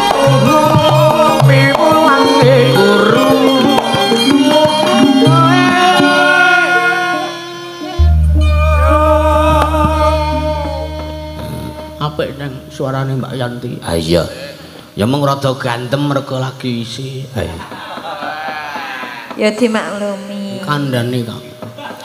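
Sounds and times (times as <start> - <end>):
gamelan: 0.0 - 13.6
woman singing ornamented vocal: 1.7 - 12.0
hand drum strokes: 7.9 - 12.9
deep gong ringing: 8.0 - 13.9.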